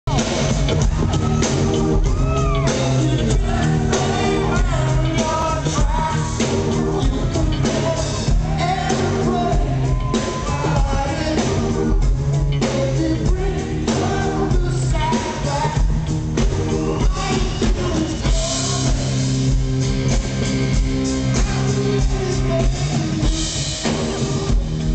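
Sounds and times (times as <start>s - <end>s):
live band music: 0.1s - 24.9s
man singing into a microphone: 2.1s - 19.4s, 21.2s - 23.5s.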